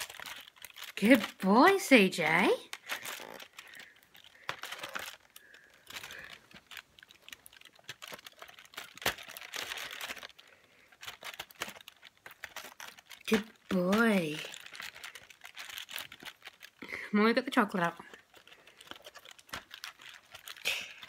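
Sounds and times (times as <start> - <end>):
foil and cardboard crinkling: 0.0 - 21.0.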